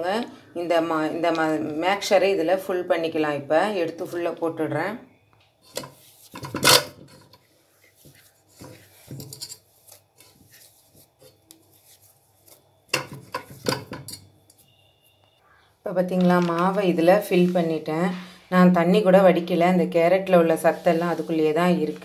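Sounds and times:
hand scraping dough in metal pot: 5.6s - 12.1s, 20.1s - 22.0s.

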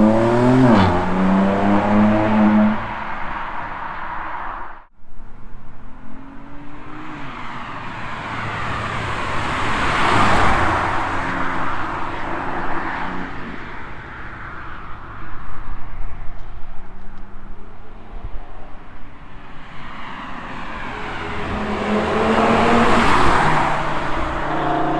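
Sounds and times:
car accelerating past: 0.0s - 3.2s, 6.0s - 13.6s, 19.4s - 24.9s.

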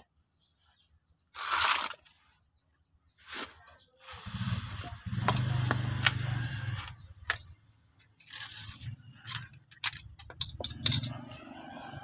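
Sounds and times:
metallic clicks and scrapes: 6.8s - 12.0s.

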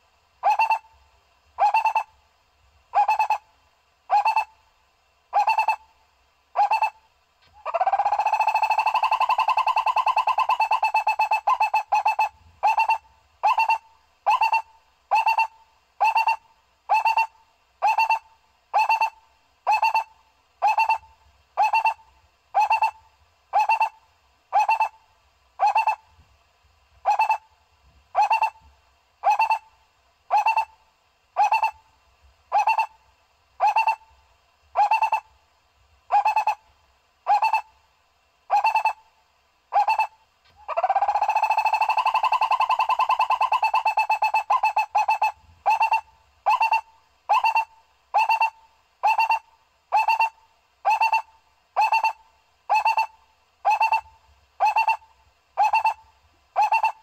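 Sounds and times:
barbet calling: 0.4s - 1.0s, 1.6s - 2.1s, 2.9s - 3.4s, 4.1s - 4.6s, 5.3s - 5.9s, 6.6s - 7.0s, 7.6s - 25.0s, 25.6s - 26.0s, 27.0s - 27.5s, 28.2s - 28.6s, 29.2s - 30.8s, 31.4s - 31.8s, 32.5s - 33.0s, 33.6s - 34.2s, 34.8s - 35.3s, 36.1s - 36.6s, 37.2s - 37.7s, 38.5s - 39.1s, 39.7s - 57.0s.

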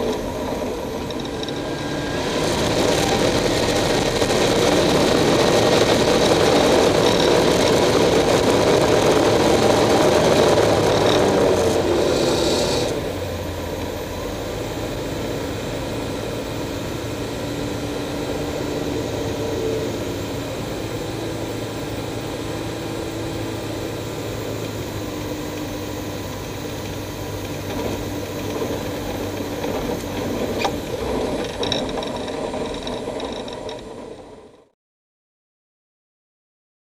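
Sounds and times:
small aircraft engine and propeller: 0.0s - 34.8s.

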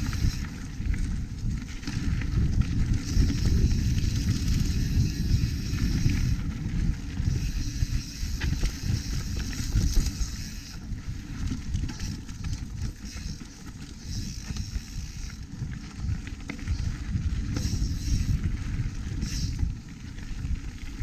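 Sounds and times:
bike tyres rolling on dirt: 0.0s - 21.0s
wind rumble on microphone: 0.0s - 21.0s
bike knocks and rattles: 7.2s - 18.3s.

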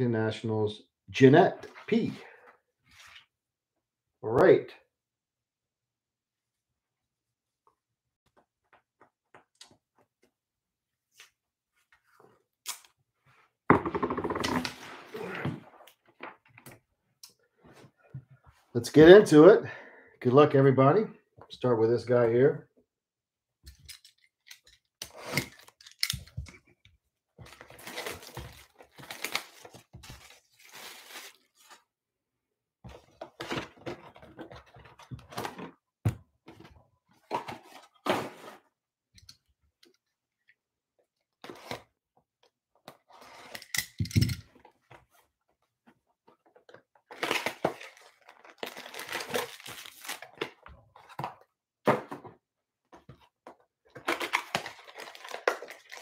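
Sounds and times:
foil wrapper tearing and crinkling: 47.1s - 50.4s, 54.2s - 56.0s.

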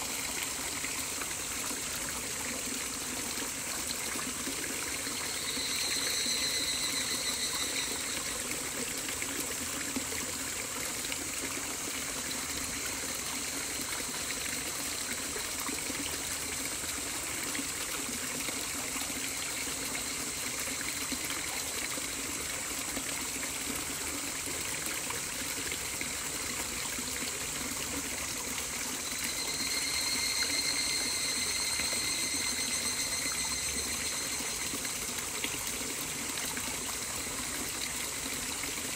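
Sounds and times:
running water: 0.0s - 38.9s
high ringing tone: 4.6s - 9.0s, 28.5s - 36.2s.

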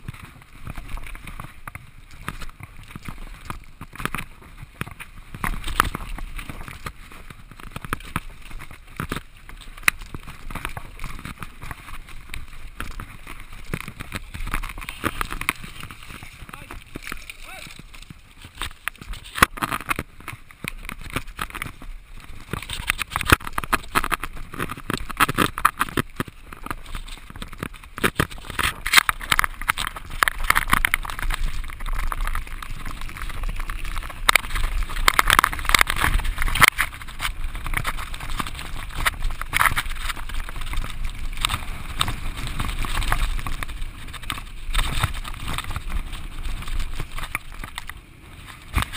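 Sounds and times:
bike rattling and knocking: 0.0s - 48.9s
tyre noise on dirt: 0.0s - 48.9s.

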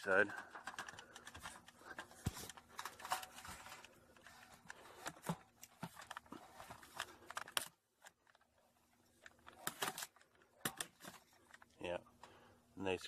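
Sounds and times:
scattered clicks: 0.0s - 2.9s.

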